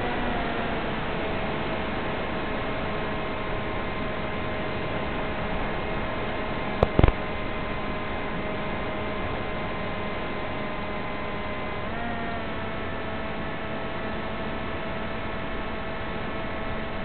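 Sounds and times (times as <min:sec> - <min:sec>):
sharp pops: 0:06.8 - 0:07.2.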